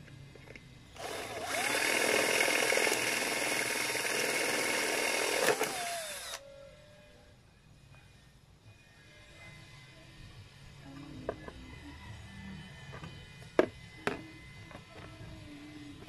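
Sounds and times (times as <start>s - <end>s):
cordless drill whining: 1.0s - 6.4s.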